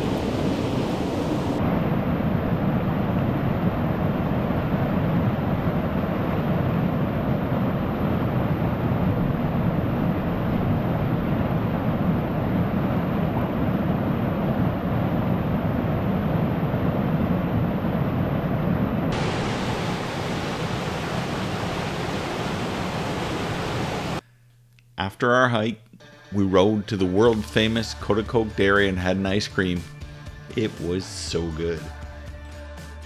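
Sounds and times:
whitewater rushing over rocks: 19.1 - 24.2.

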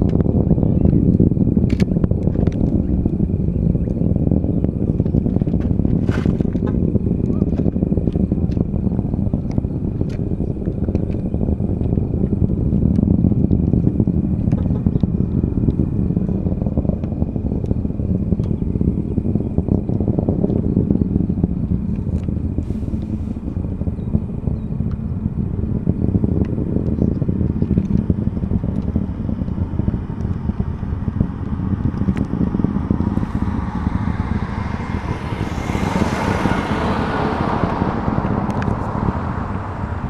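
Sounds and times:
distant rocket engine roar: 0.0 - 40.0.

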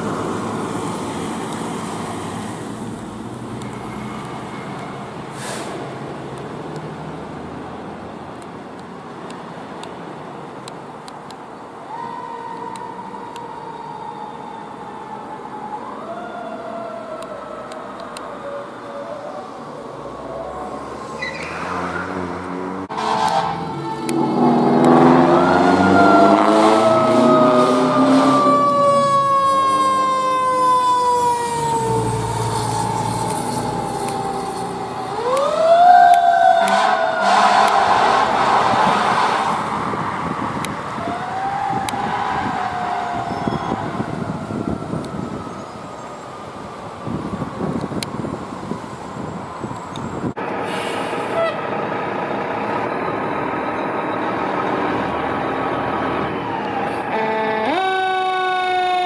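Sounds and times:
fire engine siren: 11.8 - 59.0
truck rumble: 15.9 - 58.8.

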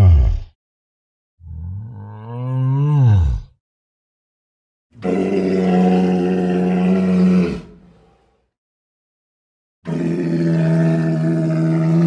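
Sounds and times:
deep dinosaur calls: 5.0 - 8.4, 9.9 - 12.0.

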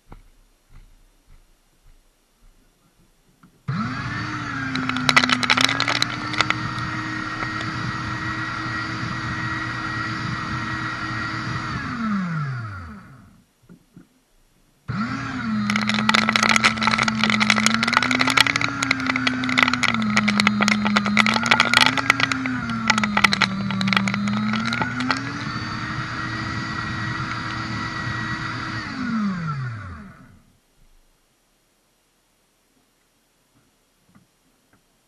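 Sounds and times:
cutters crunching cardboard: 3.7 - 8.7, 15.0 - 27.7
shredder motor humming: 3.7 - 13.4, 14.9 - 30.4.

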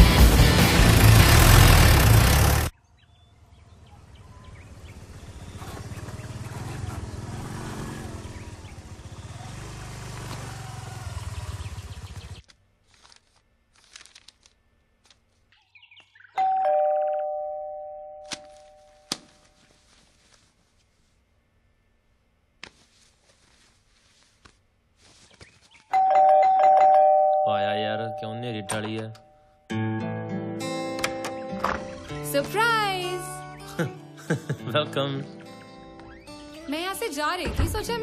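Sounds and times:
two-note doorbell chime: 16.4 - 19.0, 26.0 - 29.1.

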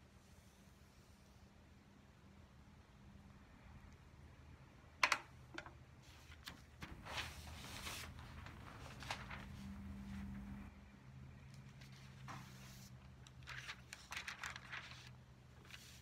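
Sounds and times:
faint low hum: 0.0 - 16.0
paper rustling: 6.0 - 10.7, 11.6 - 16.0.

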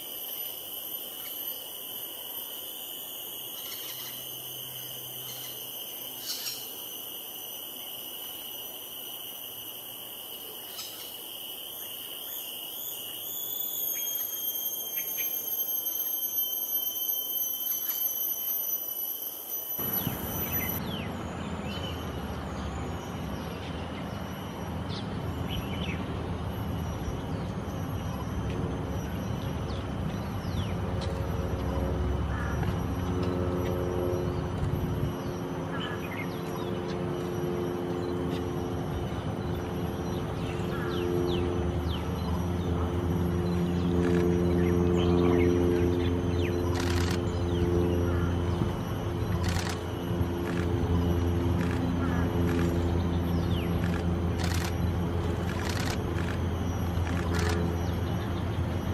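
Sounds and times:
high-pitched insect drone: 0.0 - 58.9
faint bird chirps: 3.5 - 6.8, 39.6 - 48.7, 49.3 - 58.9.

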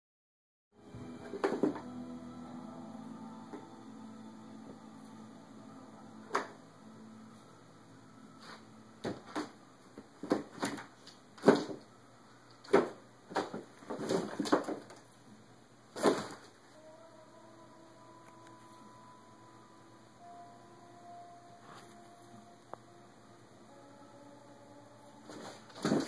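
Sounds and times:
low hum: 0.8 - 10.2.

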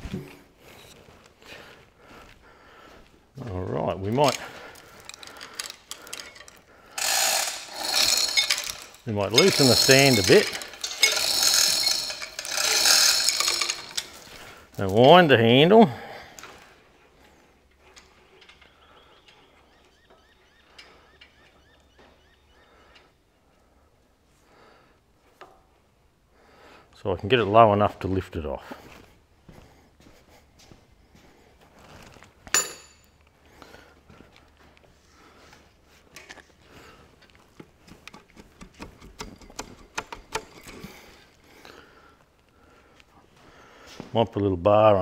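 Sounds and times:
engine stand crank squeaking: 5.0 - 14.3, 37.5 - 41.3.

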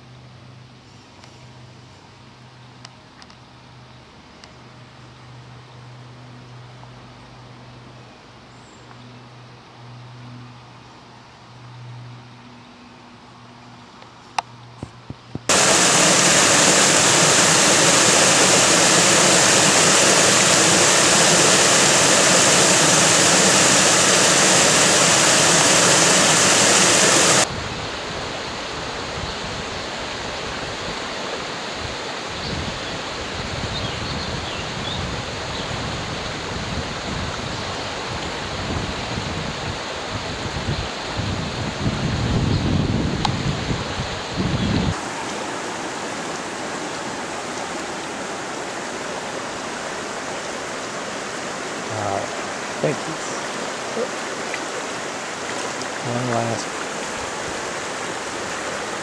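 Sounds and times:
water rushing over rocks: 15.5 - 32.3, 44.9 - 59.0
river flowing: 15.5 - 33.6, 44.9 - 59.0.

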